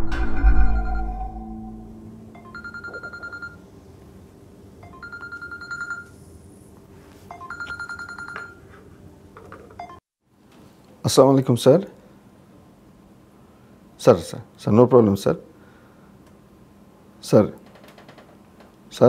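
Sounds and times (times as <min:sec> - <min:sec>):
mobile phone ringing: 0:02.3 - 0:03.6, 0:04.8 - 0:06.2, 0:07.3 - 0:08.8.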